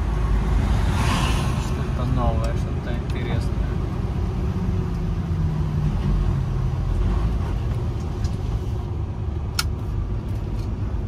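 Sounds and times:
road rumble: 0.0s - 11.0s.

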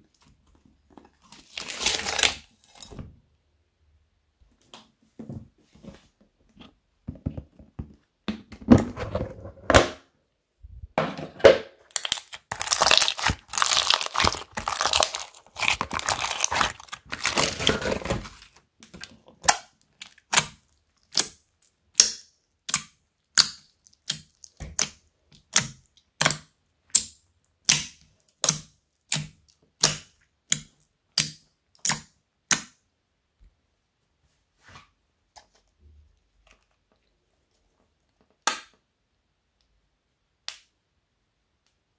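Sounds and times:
slime crinkling and squelching: 0.0s - 3.0s, 11.9s - 32.0s.

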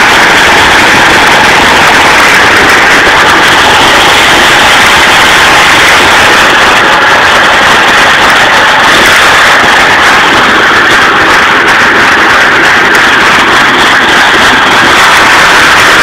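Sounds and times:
outboard motor running loud: 0.0s - 16.0s
propeller churning water: 0.0s - 16.0s.

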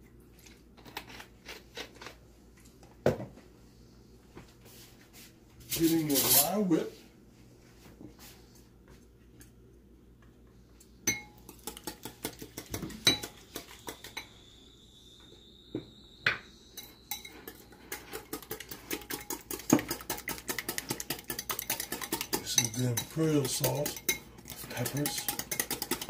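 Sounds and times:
wire whisk clinking in bowl: 11.1s - 14.3s, 16.8s - 26.0s.

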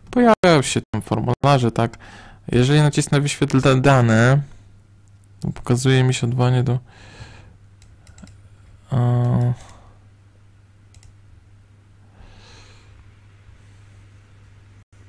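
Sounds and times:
steady low hum: 0.0s - 15.0s
faint clicks: 7.8s - 8.4s, 10.9s - 11.2s
man humming hmm: 8.8s - 9.9s.

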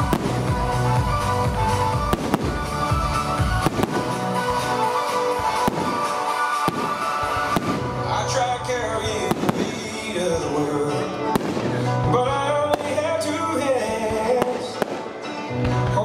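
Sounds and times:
loud music with sustained tones: 0.0s - 16.0s
firework shells bursting: 3.6s - 8.1s.

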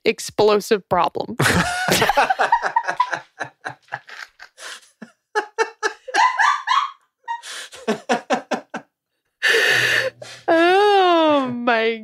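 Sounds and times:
people laughing: 1.4s - 8.8s
loud breath: 4.6s - 5.0s, 7.4s - 7.9s, 9.4s - 10.5s.

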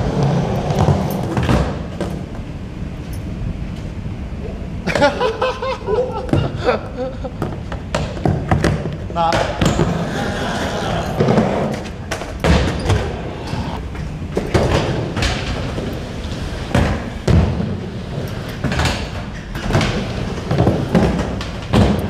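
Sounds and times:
skateboards rolling on ramps: 0.0s - 2.6s, 7.2s - 22.0s.

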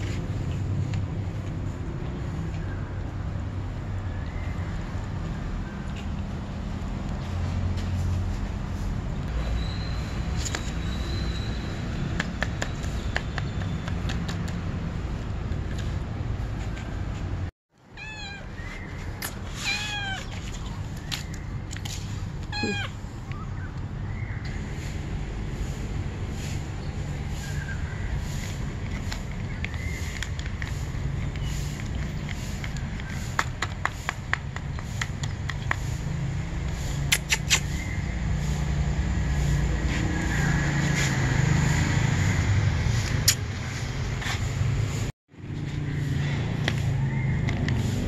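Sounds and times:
cat meowing: 17.9s - 18.7s, 19.5s - 20.3s, 22.5s - 23.0s.

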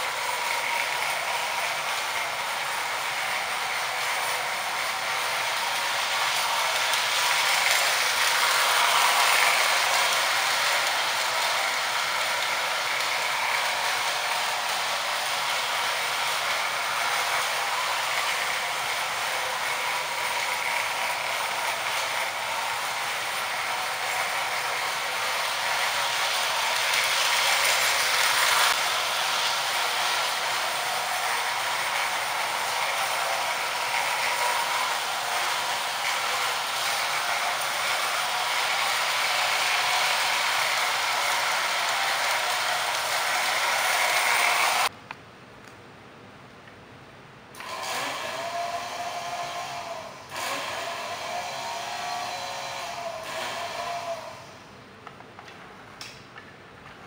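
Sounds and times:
motor whirring: 0.0s - 44.9s
toy train rattling on track: 0.0s - 44.9s.

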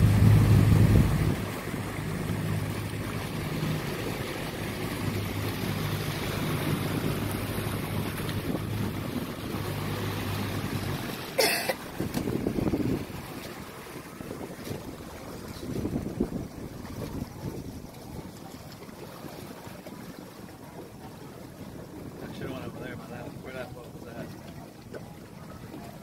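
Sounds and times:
wind buffeting microphone: 0.0s - 11.1s, 11.8s - 18.4s
outboard motor humming: 0.0s - 26.0s
water rushing past hull: 0.0s - 26.0s.

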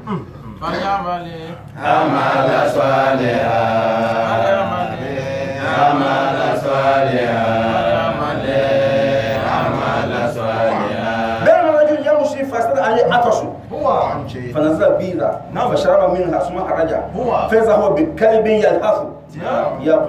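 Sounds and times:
man chanting melodically: 0.5s - 8.9s, 9.6s - 20.0s.

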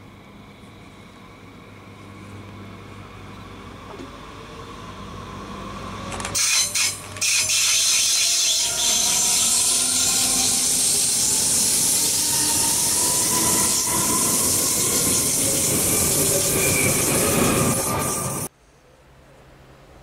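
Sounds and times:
train running past: 0.0s - 18.5s.

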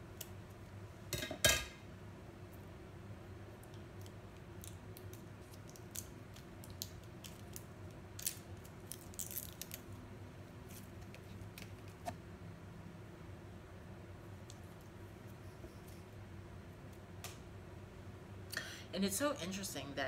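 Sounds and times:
plastic package crinkling open: 4.0s - 10.0s.

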